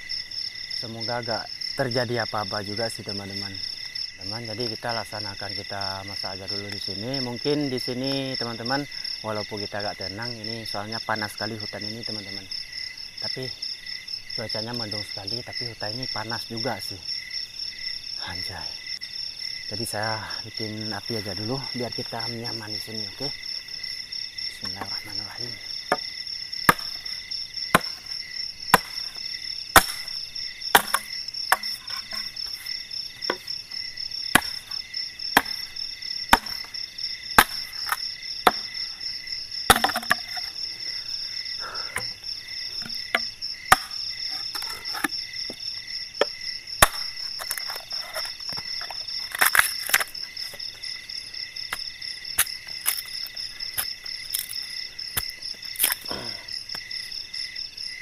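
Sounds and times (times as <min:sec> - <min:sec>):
night insects chorus: 0:00.0 - 0:58.0
machete chopping wood: 0:24.6 - 0:25.2, 0:25.9 - 0:26.1, 0:26.7 - 0:33.5, 0:34.3 - 0:36.8, 0:37.4 - 0:38.8, 0:39.7 - 0:40.5, 0:42.8 - 0:45.6, 0:46.2 - 0:50.1.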